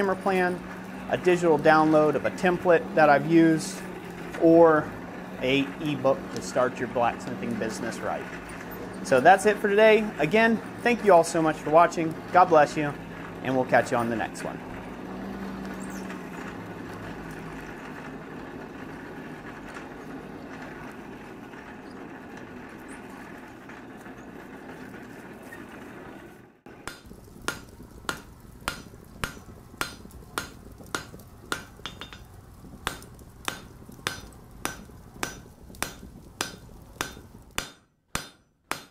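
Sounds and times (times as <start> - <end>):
forge fire rushing: 0.0 - 37.8
hammer blows on anvil: 26.8 - 38.9.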